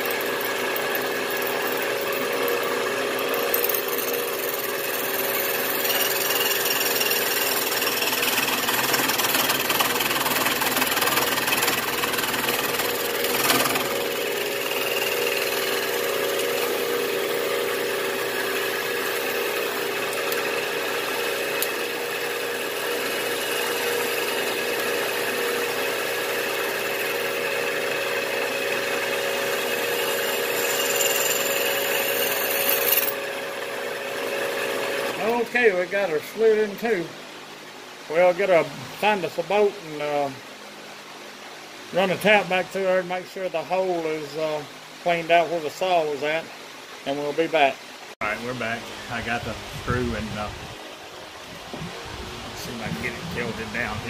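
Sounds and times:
loud saw rasp: 0.0 - 35.3
milling machine humming: 0.0 - 35.5, 48.3 - 54.0
saw hissing through metal: 29.7 - 33.0.

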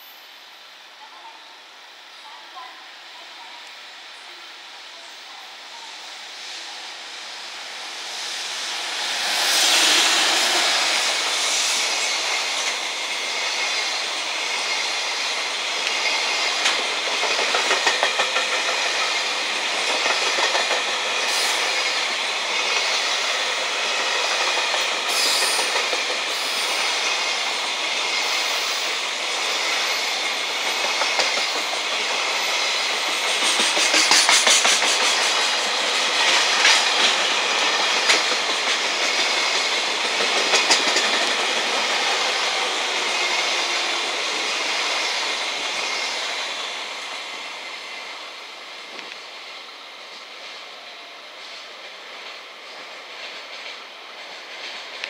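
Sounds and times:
freight train passing: 0.0 - 55.0
wheels clacking over rail joints: 15.8 - 19.1, 33.2 - 44.0.

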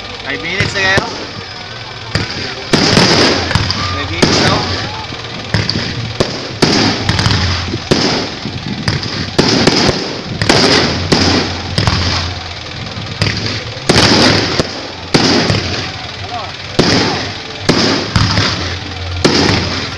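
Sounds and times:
fireworks crackling hiss: 0.0 - 19.9
fireworks bangs: 0.4 - 19.9.

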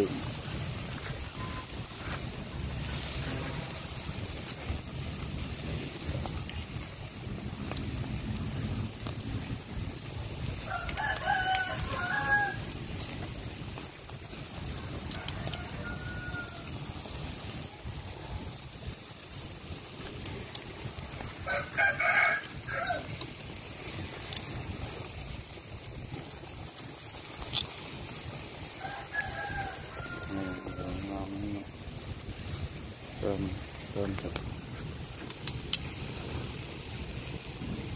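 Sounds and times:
rooster crowing: 10.6 - 12.8, 14.6 - 17.0, 21.4 - 23.2, 28.7 - 31.7.

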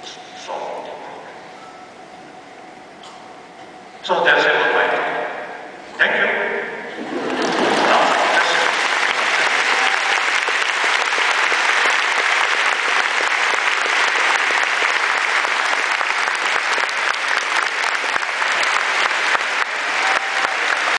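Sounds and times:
large audience applauding: 7.0 - 20.9.

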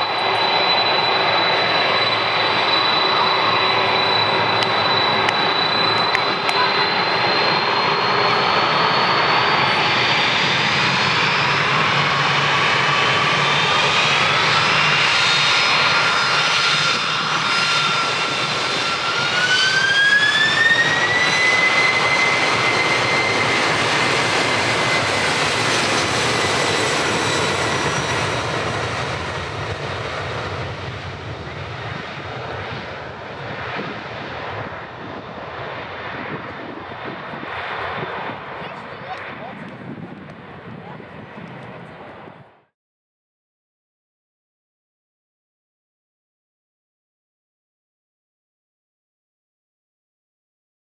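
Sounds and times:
jet engines spooling up: 0.0 - 42.4.

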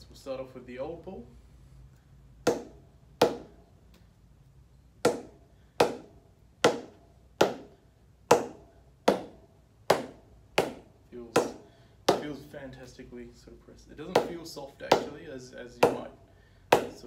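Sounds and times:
cricket ball knocking on bat: 2.5 - 3.5, 5.0 - 7.7, 8.3 - 12.3.

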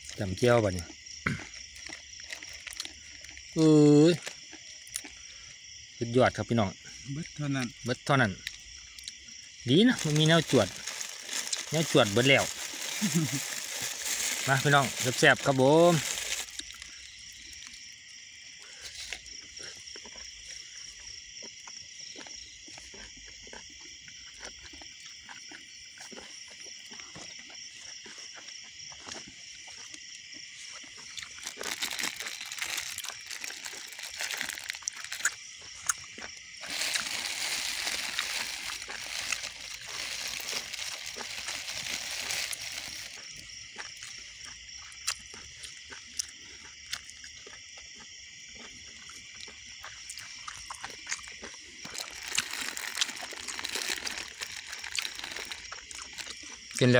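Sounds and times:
night insects chorus: 0.0 - 56.9
plastic bags crinkling: 9.7 - 16.9, 31.1 - 35.3, 36.6 - 43.5, 51.8 - 56.4.

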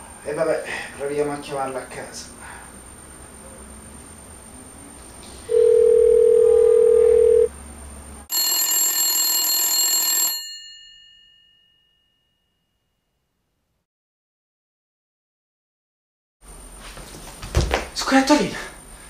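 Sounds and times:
phone ringback tone: 5.5 - 7.5, 8.3 - 11.6
telephone bell ringing: 5.5 - 7.5, 8.3 - 12.1.

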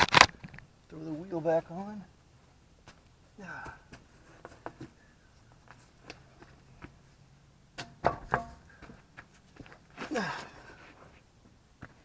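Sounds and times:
wheel clunking onto metal hub: 7.8 - 8.7.

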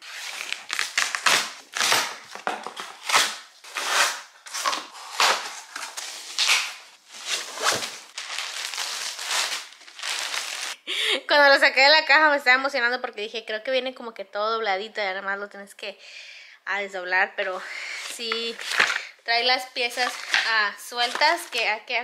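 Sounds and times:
cardboard ripping and tearing: 0.0 - 10.8
knife slitting packing tape: 0.0 - 10.8.

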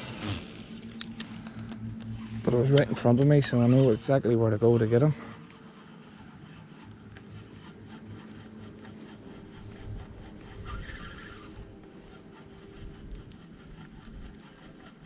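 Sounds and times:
fishing reel whirring: 0.0 - 15.0
wind rumbling on microphone: 6.2 - 15.0.

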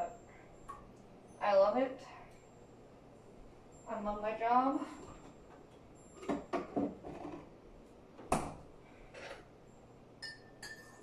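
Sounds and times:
objects knocking on counter: 6.2 - 7.4.

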